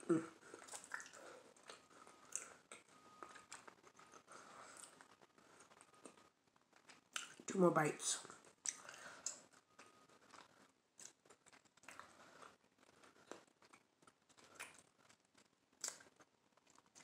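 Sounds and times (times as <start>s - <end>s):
mouth sounds: 0.0s - 1.1s
chewing with mouth closed: 0.4s - 7.5s, 8.2s - 17.0s.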